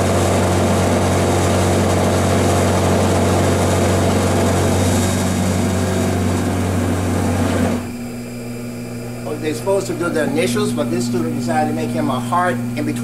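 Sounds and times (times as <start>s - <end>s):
end mill cutting plastic: 0.0s - 8.1s
milling machine motor hum: 0.0s - 13.0s.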